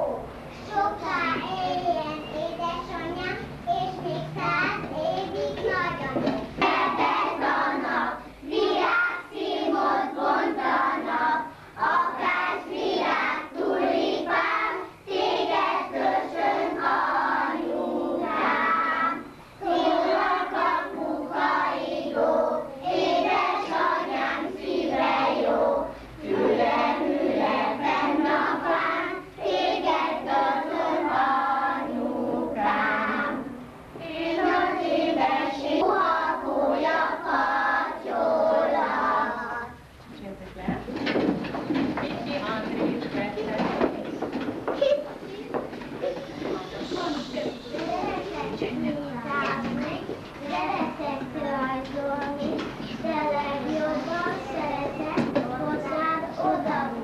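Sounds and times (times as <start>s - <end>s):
children singing in chorus: 5.4s - 39.8s.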